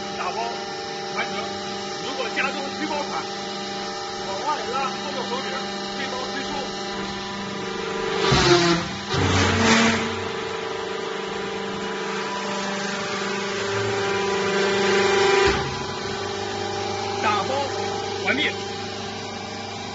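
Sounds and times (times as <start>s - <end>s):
hydraulic machine humming: 0.0s - 19.9s.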